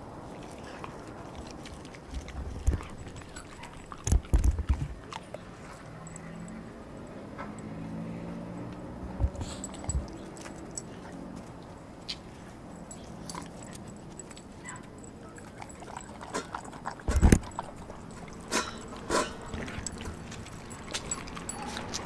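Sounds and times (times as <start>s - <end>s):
dog chewing meat: 0.2s - 6.3s, 13.0s - 22.0s.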